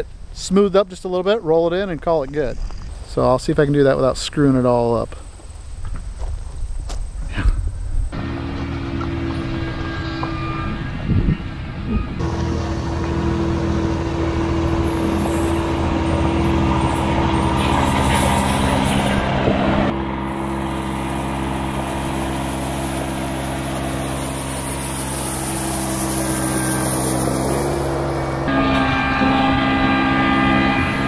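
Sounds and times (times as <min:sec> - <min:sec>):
tractor engine running: 0:08.1 - 0:31.0.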